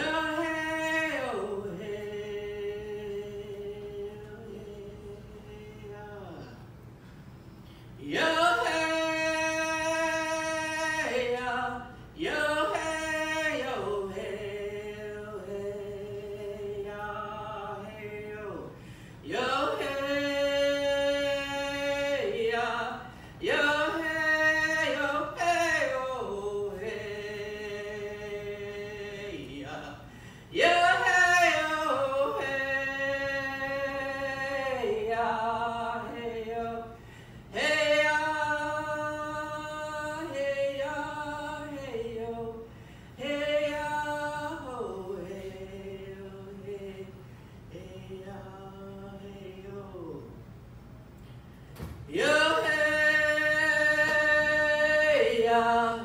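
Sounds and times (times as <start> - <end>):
woman singing unaccompanied: 0.0 - 6.6, 8.0 - 50.3, 52.1 - 56.0.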